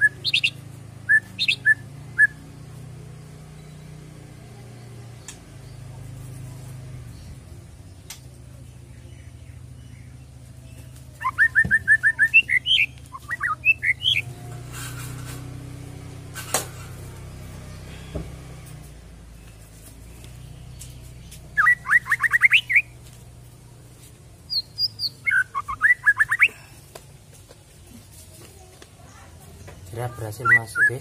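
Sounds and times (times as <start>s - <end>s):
bird rapid repeated chirps: 0.0s - 2.6s, 8.0s - 15.2s, 19.4s - 23.0s, 24.5s - 26.5s, 30.1s - 31.0s.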